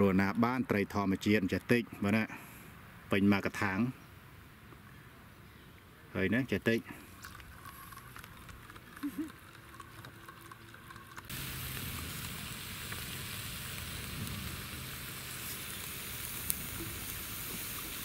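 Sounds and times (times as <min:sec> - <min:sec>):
meat sizzling on a grill: 0:10.9 - 0:18.0.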